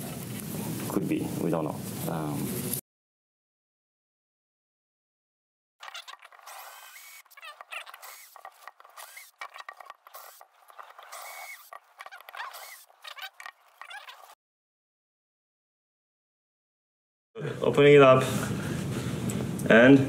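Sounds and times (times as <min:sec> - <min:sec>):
cordless drill grinding on metal: 0:05.8 - 0:14.4.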